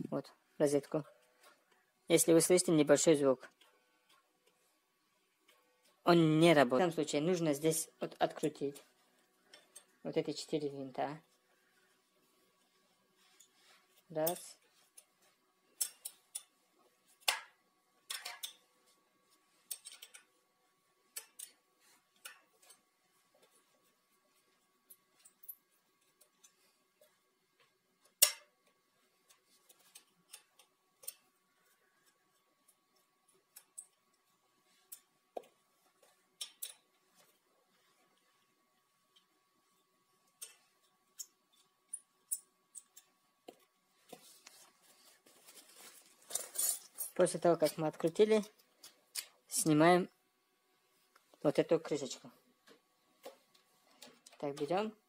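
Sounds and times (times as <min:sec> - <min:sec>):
soft rustling: 0:11.2 - 0:15.6, 0:43.6 - 0:47.9.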